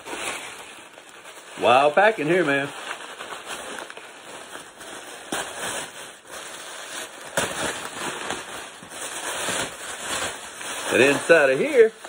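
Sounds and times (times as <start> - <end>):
tissue paper crinkling: 0.0 - 12.0.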